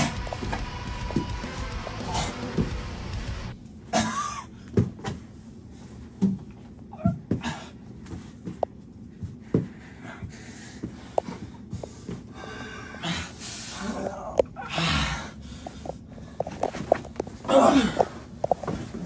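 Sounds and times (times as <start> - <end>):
heavy breathing: 0.0 - 3.6, 7.3 - 19.0
bodies knocking and scuffing: 16.3 - 19.0.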